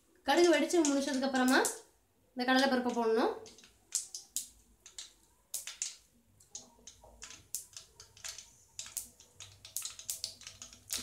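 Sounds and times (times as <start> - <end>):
mustard seeds popping in hot oil: 0.0 - 11.0.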